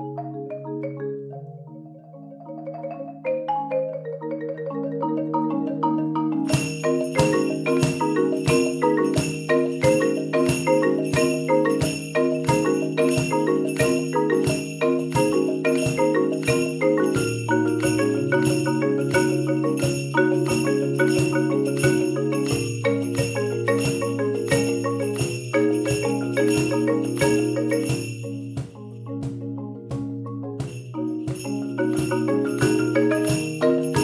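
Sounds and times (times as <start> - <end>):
marimba playing: 0.0 - 34.0
jingling bells: 3.2 - 29.5, 30.1 - 34.0.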